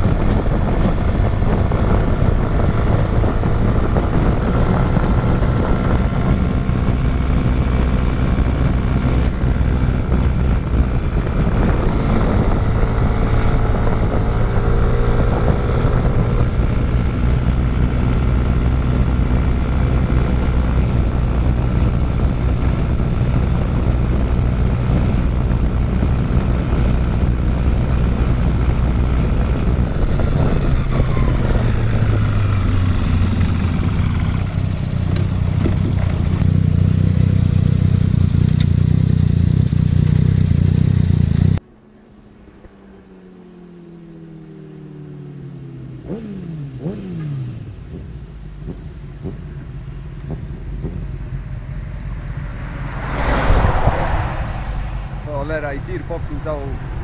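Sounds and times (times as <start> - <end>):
wind rush on microphone: 0.0 - 36.5, 52.0 - 57.0
scooter engine running: 25.9 - 41.6.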